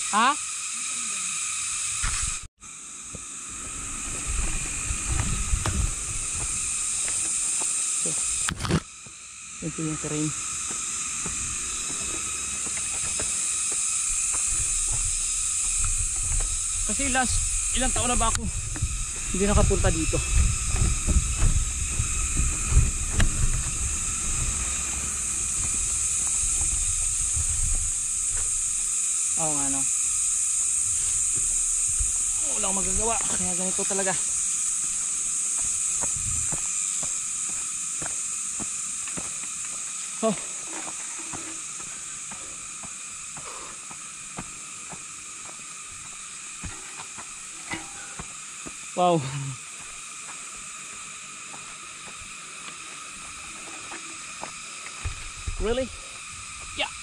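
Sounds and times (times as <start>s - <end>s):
steady high hiss: 0.0s - 57.0s
wind buffeting microphone: 3.6s - 7.1s, 14.1s - 28.8s, 35.9s - 36.7s, 55.0s - 56.8s.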